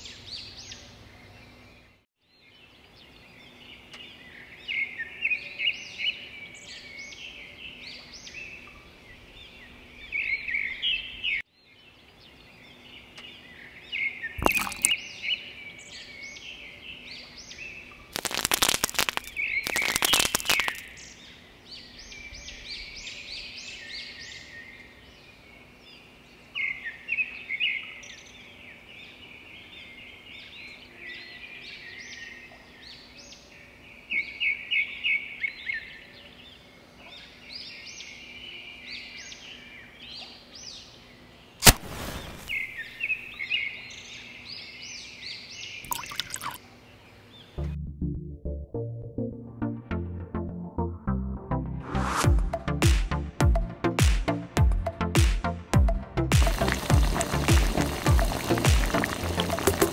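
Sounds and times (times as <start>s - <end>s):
small birds chirping: 0.0s - 47.6s, 56.2s - 59.9s
sharp cracks and crunches: 18.1s - 21.0s, 41.6s - 42.9s.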